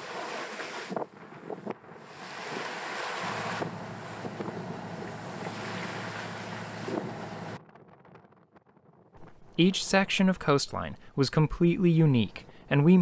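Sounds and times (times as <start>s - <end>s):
water splashing along hull: 0.0s - 7.6s
wind buffeting microphone: 0.8s - 9.2s
steady low hum: 3.2s - 7.6s.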